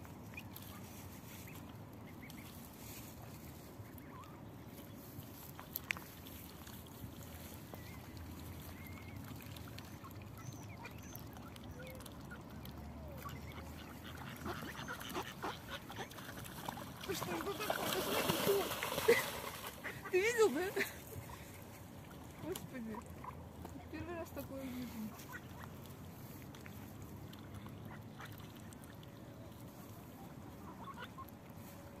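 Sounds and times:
mallards calling: 0:13.2 - 0:18.9
ducks quacking: 0:13.2 - 0:20.9.

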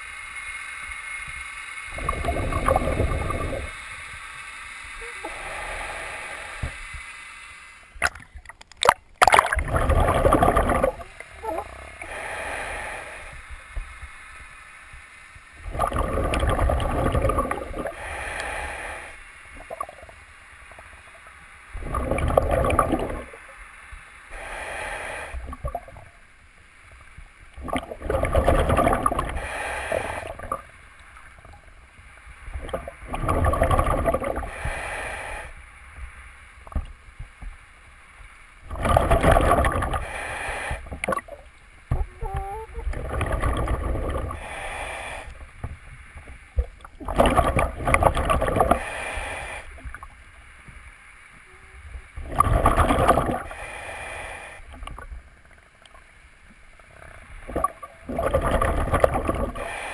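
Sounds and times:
underwater exhaled air bubbling: 0:01.9 - 0:04.0, 0:07.9 - 0:13.9, 0:15.6 - 0:21.0, 0:21.7 - 0:23.6, 0:24.3 - 0:26.2, 0:27.5 - 0:31.7, 0:32.4 - 0:35.6, 0:38.6 - 0:50.2, 0:51.5 - 0:56.1, 0:56.8 - 0:59.9.

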